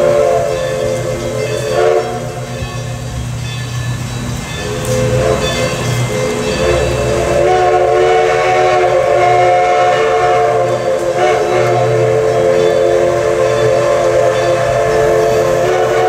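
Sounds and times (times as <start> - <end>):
steam locomotive whistle: 0.0 - 16.0.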